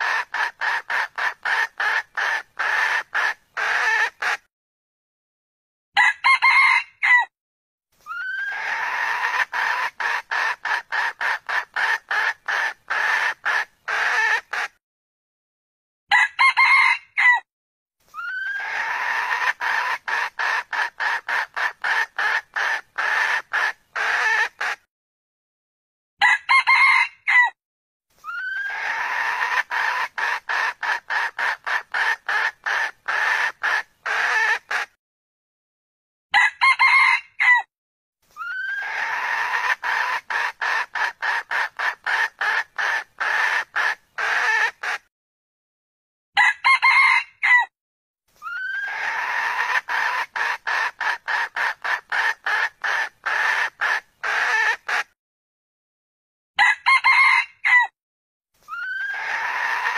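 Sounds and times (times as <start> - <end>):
hen clucking: 0.0 - 4.5, 8.1 - 14.8, 18.2 - 24.8, 28.3 - 35.0, 38.4 - 45.1, 48.4 - 55.2, 58.7 - 59.9
rooster crowing: 6.0 - 7.3, 16.1 - 17.4, 26.2 - 27.6, 36.3 - 37.7, 46.4 - 47.7, 56.6 - 57.9, 58.7 - 59.9.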